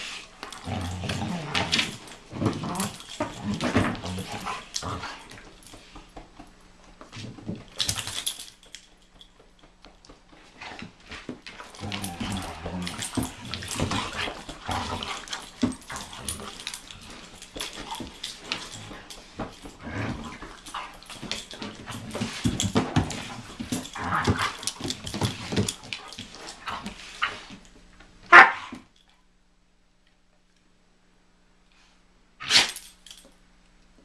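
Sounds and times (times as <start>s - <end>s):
dogs barking and growling: 0.0s - 5.9s, 10.4s - 27.4s, 28.2s - 28.8s
claws clicking on hard floor: 0.2s - 27.7s.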